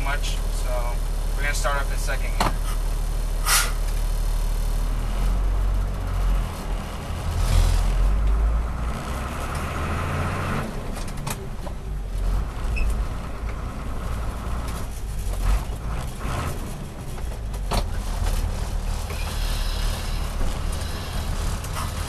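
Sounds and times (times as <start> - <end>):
truck engine pulling away: 2.6 - 22.0
sharp hiss or clunk: 3.4 - 3.8.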